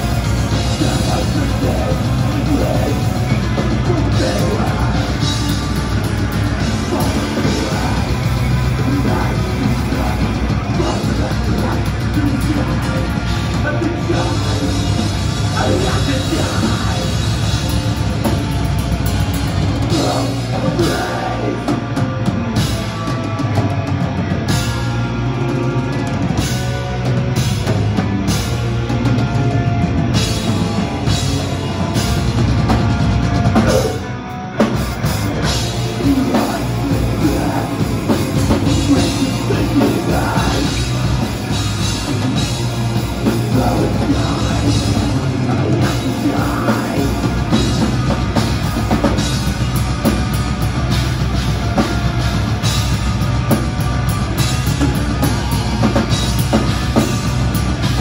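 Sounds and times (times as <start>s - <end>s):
bass guitar: 0.0s - 58.0s
distorted electric guitars: 0.0s - 58.0s
driving drum kit: 0.0s - 58.0s
person singing: 0.2s - 17.8s, 19.8s - 22.7s, 35.3s - 49.3s.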